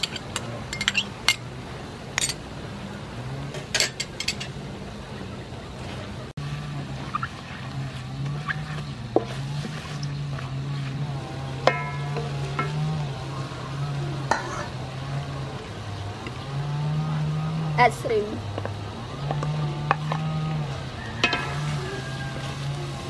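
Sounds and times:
metal spoon clinking on bowl: 0:00.0 - 0:01.4, 0:03.8 - 0:04.5, 0:11.7 - 0:12.9, 0:21.2 - 0:21.6
wooden spatula stirring in wok: 0:05.8 - 0:16.4.

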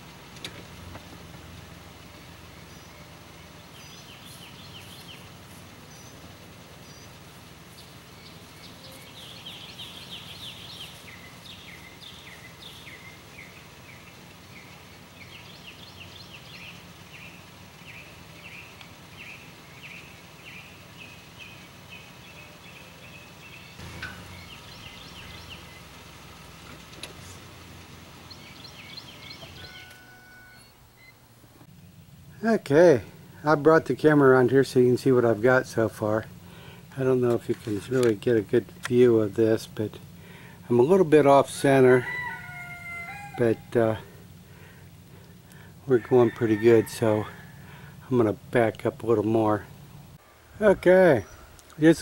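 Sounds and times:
low background hum: 0:00.0 - 0:50.6
songbirds chirping: 0:00.0 - 0:52.0.

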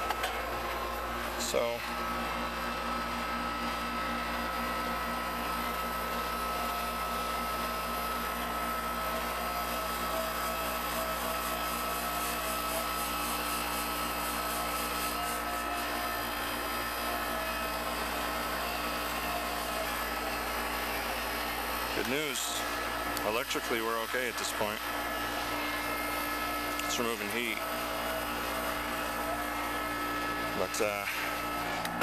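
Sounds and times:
air conditioner unit humming: 0:00.0 - 0:32.0
thin whine: 0:00.0 - 0:32.0.

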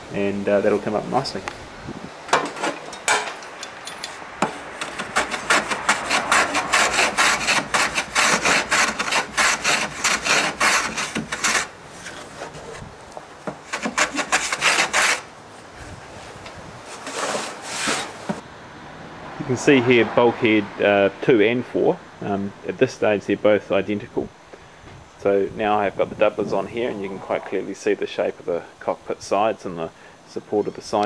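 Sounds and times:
hand plane rasping on wood: 0:04.4 - 0:12.8, 0:13.5 - 0:15.3, 0:16.9 - 0:18.2.

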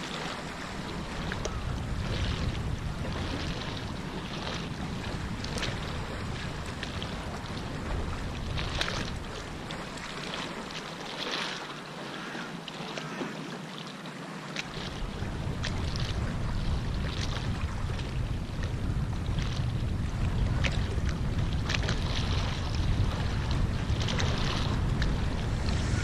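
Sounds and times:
wind buffeting microphone: 0:00.0 - 0:11.3, 0:14.7 - 0:26.0
waves lapping against wall: 0:00.0 - 0:26.0
low rumble: 0:20.0 - 0:26.0.

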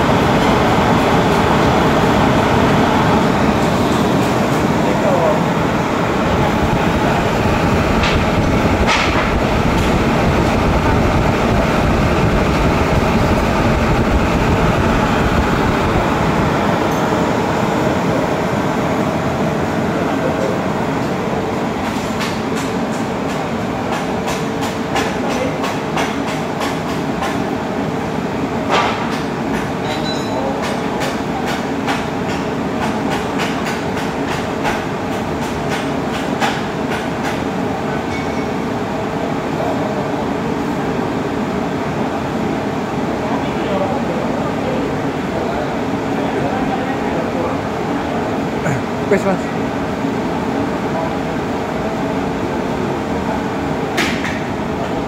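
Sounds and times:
cooling fan rush: 0:00.0 - 0:29.8, 0:30.4 - 0:55.0.

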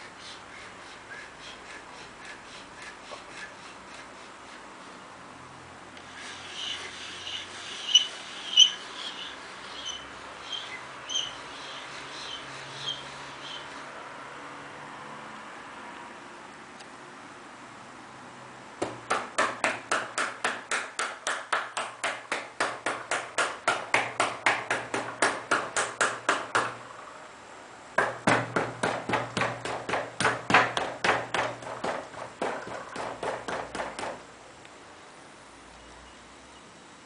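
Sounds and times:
rapid even knocks: 0:18.8 - 0:26.8, 0:28.0 - 0:34.3.

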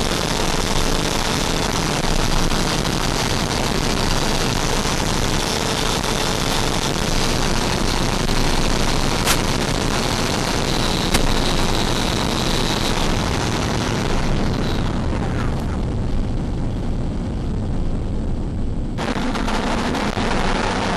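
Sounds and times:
electric ducted fan rushing: 0:00.0 - 0:20.9
sharp clicks: 0:09.2 - 0:09.6, 0:11.0 - 0:11.4.

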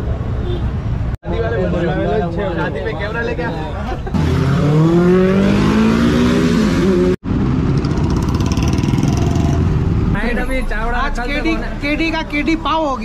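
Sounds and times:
motorcycle engine accelerating: 0:04.2 - 0:10.0.

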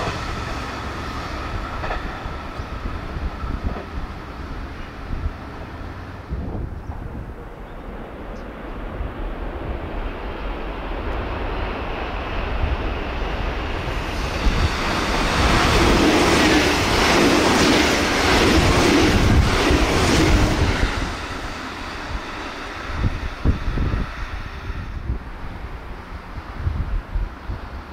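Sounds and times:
wheels clacking over rail joints: 0:00.0 - 0:06.0
electric train passing: 0:00.0 - 0:27.9
rush of wheels and air: 0:00.0 - 0:27.9.

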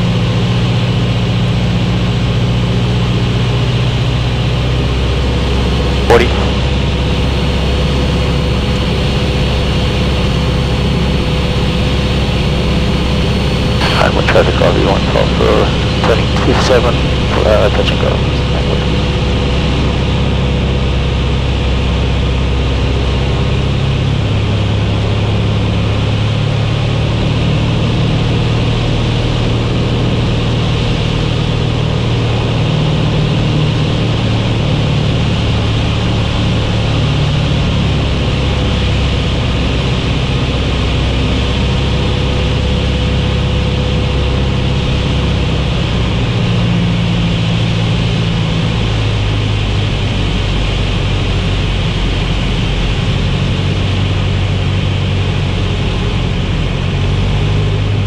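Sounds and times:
propeller plane engine drone: 0:00.0 - 0:58.0.

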